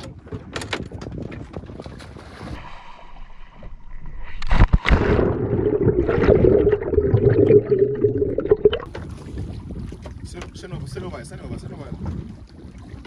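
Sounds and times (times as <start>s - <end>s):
muffled underwater bubbling: 3.3s - 9.0s.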